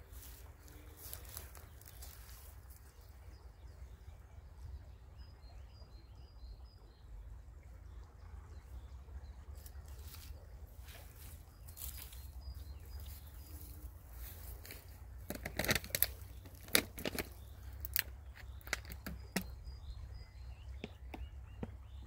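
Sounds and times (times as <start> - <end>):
small bird chirping: 9.6 - 22.0.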